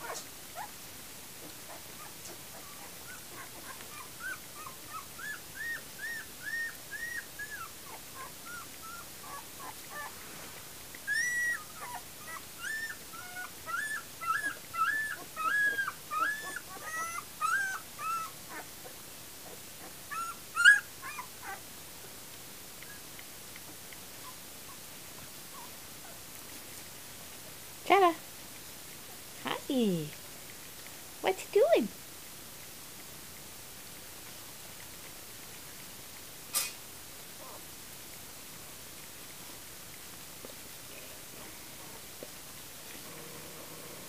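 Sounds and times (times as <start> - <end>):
puppies whimpering and squeaking: 0.0 - 0.7, 1.5 - 10.2, 10.9 - 21.6.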